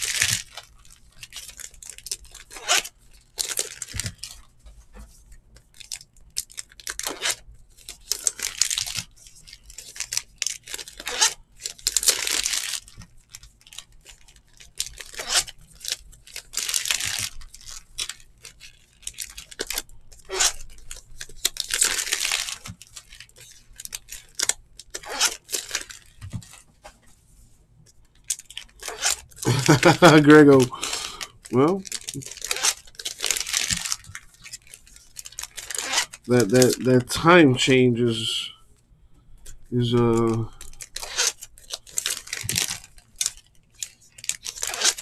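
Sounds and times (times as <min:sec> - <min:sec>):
wrappers tearing and crinkling: 0:00.0 - 0:26.9, 0:27.8 - 0:37.1, 0:39.4 - 0:45.0
cards shuffling clicks: 0:28.3 - 0:34.6, 0:39.9 - 0:45.0.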